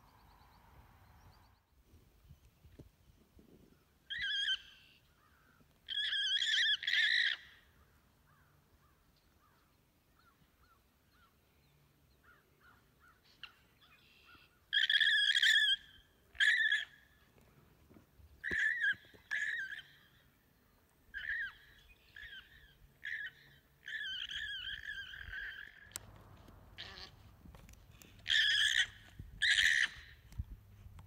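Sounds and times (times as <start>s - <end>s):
alpaca screaming: 26.8s - 27.2s, 28.2s - 30.1s.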